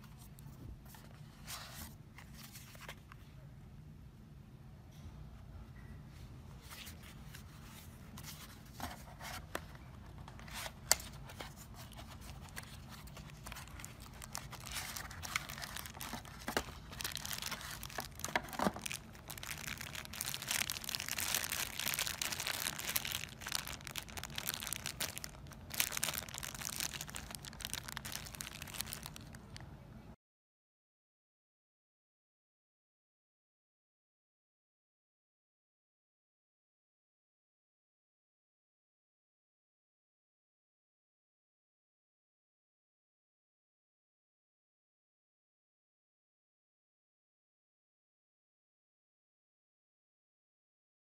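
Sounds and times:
plastic bag crinkling: 0:10.4 - 0:29.6.

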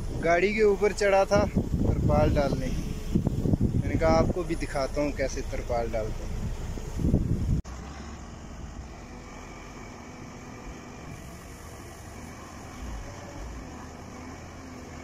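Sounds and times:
diesel truck engine running: 0:00.0 - 0:15.0
hydraulic ram raising: 0:06.0 - 0:15.0.

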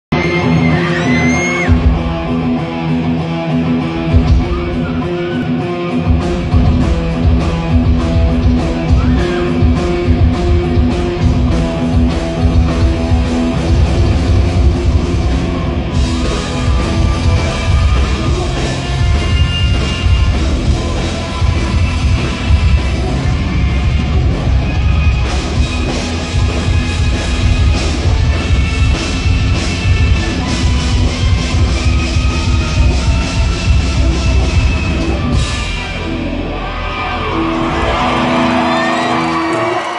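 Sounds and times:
rock music: 0:00.1 - 0:39.9
electric guitar solo: 0:00.2 - 0:06.6, 0:28.5 - 0:39.9.

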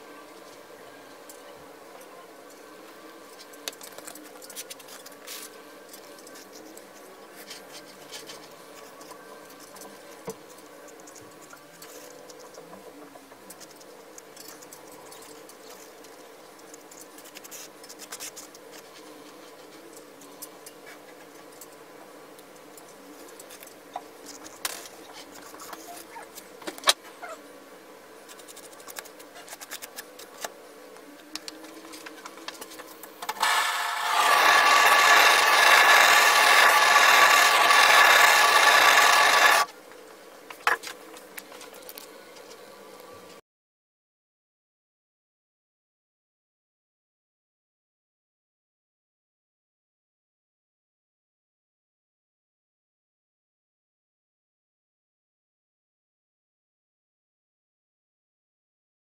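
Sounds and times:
spreader scraping epoxy: 0:33.4 - 0:39.7.

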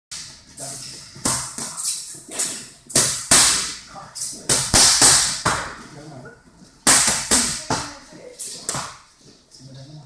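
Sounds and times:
boxing gloves slapping mitts: 0:01.2 - 0:03.7, 0:06.8 - 0:08.0.

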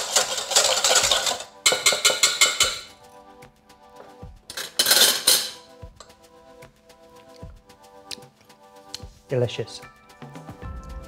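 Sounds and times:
whisk scraping in metal bowl: 0:00.0 - 0:02.9
background music: 0:00.0 - 0:11.0.

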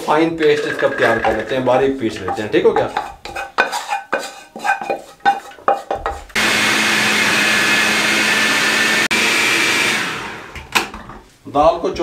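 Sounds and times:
food processor motor whir: 0:06.4 - 0:10.9.

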